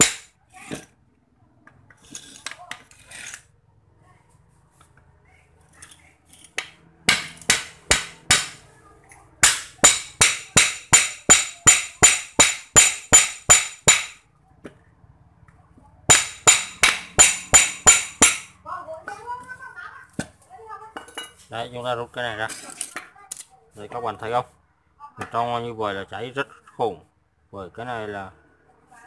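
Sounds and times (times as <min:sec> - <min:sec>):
hammer striking metal: 0:00.0 - 0:00.3, 0:06.6 - 0:08.6, 0:09.4 - 0:14.2, 0:16.1 - 0:18.6.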